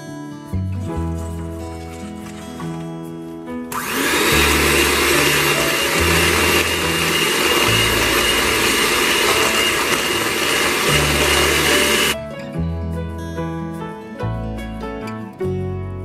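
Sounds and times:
electric hand mixer whirring: 0:03.7 - 0:12.2.

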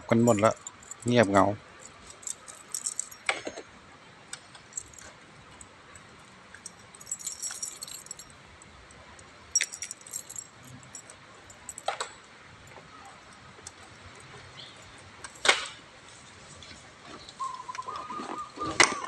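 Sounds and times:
small metal objects jingling: 0:00.0 - 0:03.6, 0:04.6 - 0:05.1, 0:06.5 - 0:08.4, 0:09.5 - 0:12.0.

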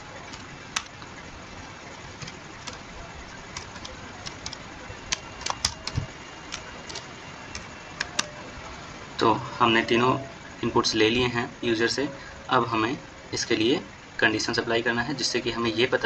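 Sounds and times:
keyboard keys clicking: 0:00.3 - 0:01.1, 0:02.2 - 0:08.4.

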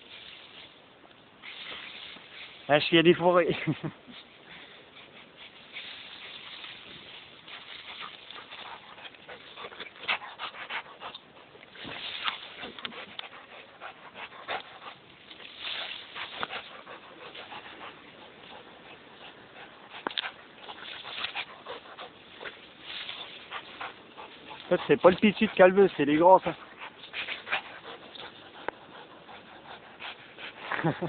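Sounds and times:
twigs crackling and leaves rustling: 0:00.0 - 0:04.4, 0:05.4 - 0:29.2
dog panting: 0:04.3 - 0:31.0.

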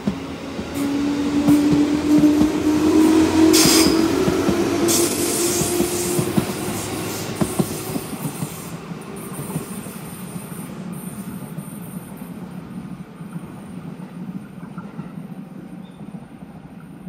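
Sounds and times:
train wheels clicking over rail joints: 0:00.0 - 0:11.4
electric train passing: 0:00.0 - 0:17.0.

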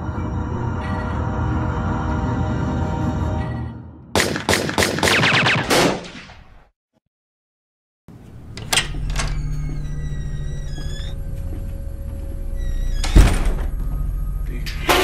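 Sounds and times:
dark tense soundtrack music: 0:00.0 - 0:04.2, 0:09.0 - 0:15.0
rapid gunshots: 0:04.2 - 0:06.3.

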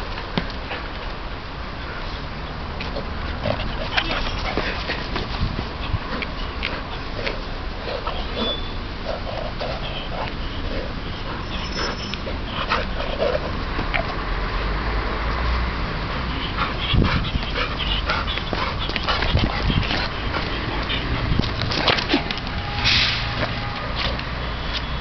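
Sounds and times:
dog whining and yipping: 0:08.1 - 0:08.8, 0:11.3 - 0:12.3.

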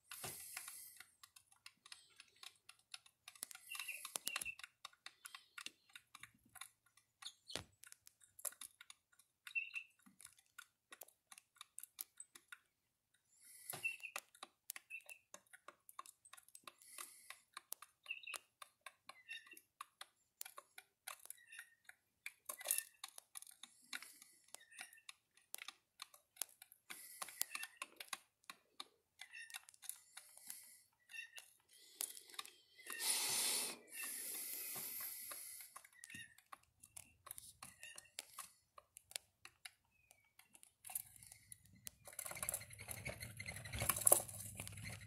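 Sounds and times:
sharp clicks and taps: 0:00.0 - 0:45.0
hissing rush: 0:32.9 - 0:35.3.

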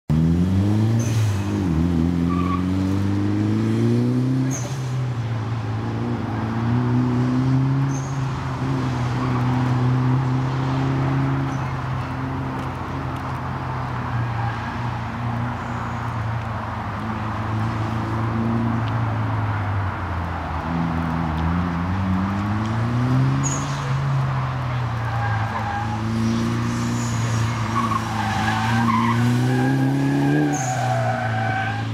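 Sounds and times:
tyres squealing: 0:24.9 - 0:31.9.

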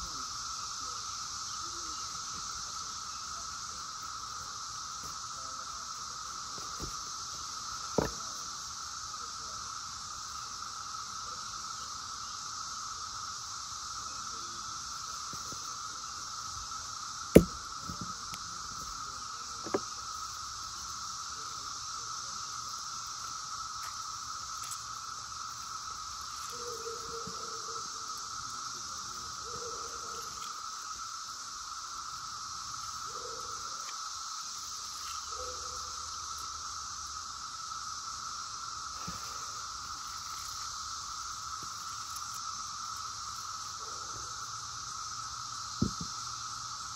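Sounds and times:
cicadas droning: 0:00.0 - 0:46.9
sharp knock: 0:17.4 - 0:18.1, 0:45.8 - 0:46.1.

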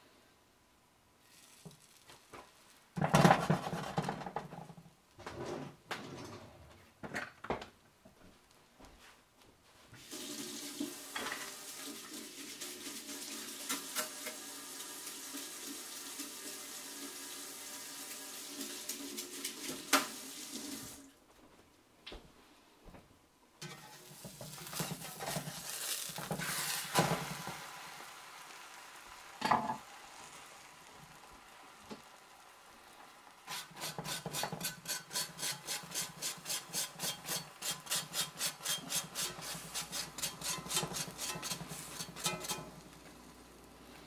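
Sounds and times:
tap running into a sink: 0:10.8 - 0:11.6, 0:19.5 - 0:20.2.

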